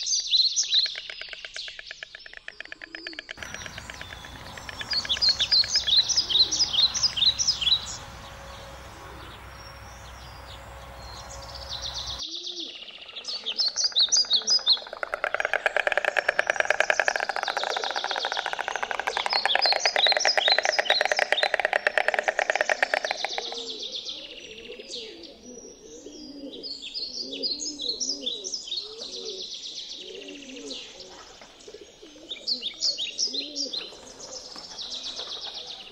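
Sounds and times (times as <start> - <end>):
songbirds chirping and trilling: 0.0 - 35.9
dense buzzing: 3.4 - 12.2
low bird call: 3.4 - 31.4.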